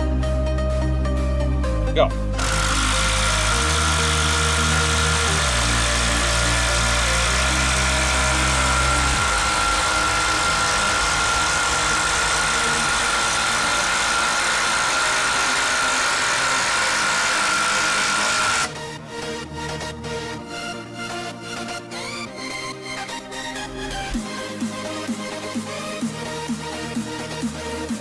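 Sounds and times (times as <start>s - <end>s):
impact driver hammering: 2.4s - 18.7s.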